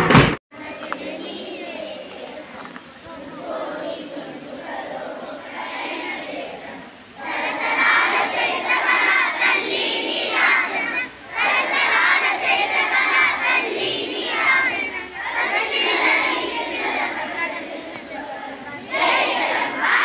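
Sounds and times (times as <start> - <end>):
children shouting together: 0.6 - 20.0.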